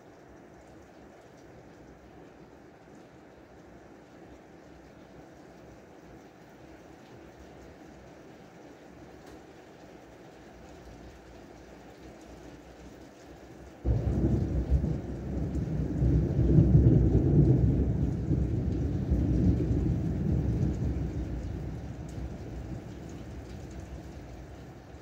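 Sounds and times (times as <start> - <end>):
heavy rain: 0.0 - 25.0
thunder rumble: 13.8 - 25.0.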